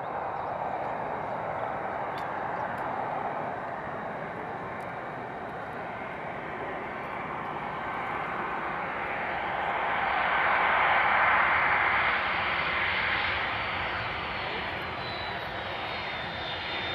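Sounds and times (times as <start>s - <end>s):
jet engines rushing: 0.0s - 16.9s.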